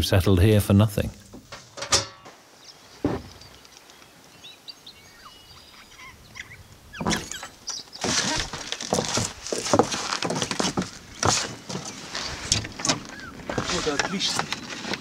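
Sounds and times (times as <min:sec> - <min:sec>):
faint bird chirps: 0:02.6 - 0:08.0
knock: 0:03.0 - 0:03.3
scuffing and crunching: 0:07.4 - 0:15.0.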